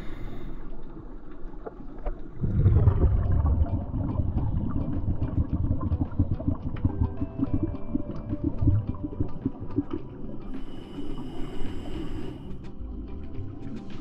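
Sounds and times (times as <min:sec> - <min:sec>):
underwater rumbling wash: 0:00.0 - 0:12.5.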